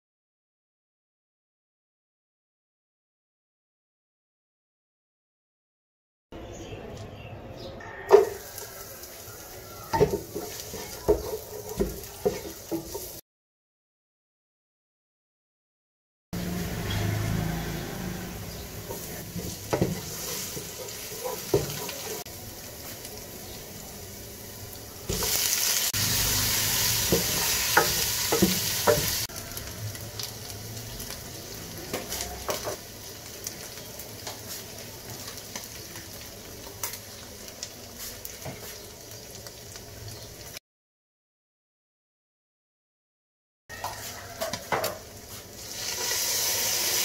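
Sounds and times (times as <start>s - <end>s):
onions sizzling in oil: 8.1s - 13.2s, 16.4s - 40.6s, 43.7s - 47.0s.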